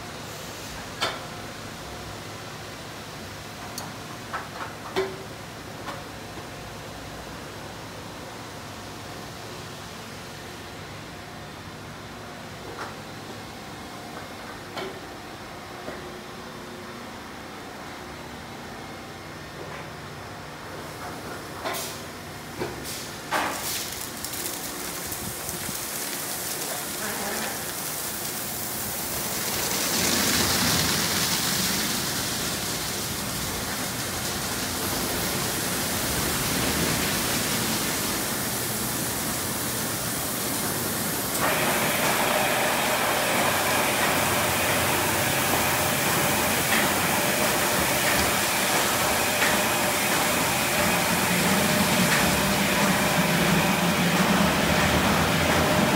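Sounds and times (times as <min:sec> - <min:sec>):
water spraying: 0:22.9 - 0:55.9.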